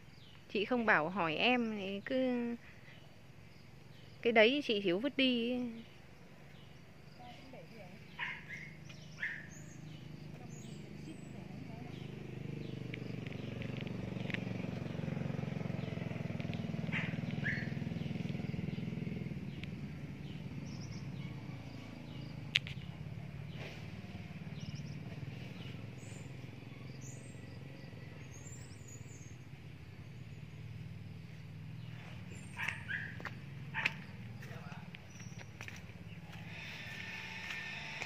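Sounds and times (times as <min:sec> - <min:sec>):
bird chirps: 0:03.9 - 0:23.7, 0:24.4 - 0:37.3
motor vehicle passing: 0:07.6 - 0:38.0.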